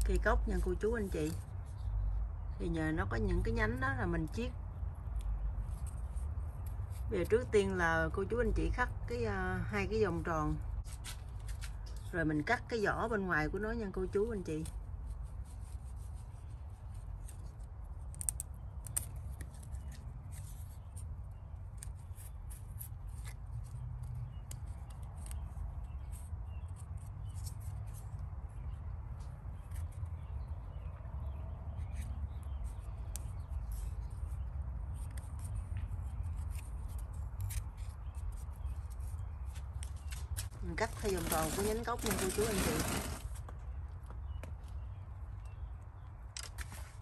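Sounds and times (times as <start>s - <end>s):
blade scraping bark: 40.8s - 43.4s.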